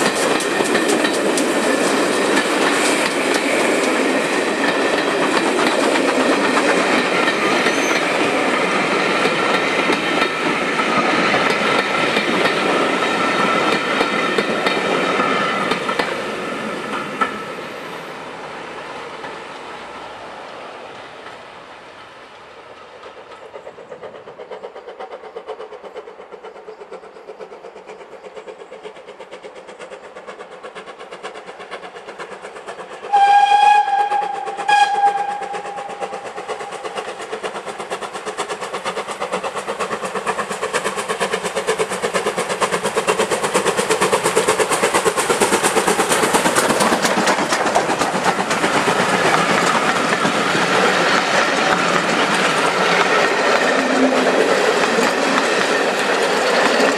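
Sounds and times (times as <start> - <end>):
train wheels clattering over rail joints: 0.0 - 18.0, 22.6 - 56.9
steam locomotive whistle: 7.5 - 8.4, 33.0 - 36.8.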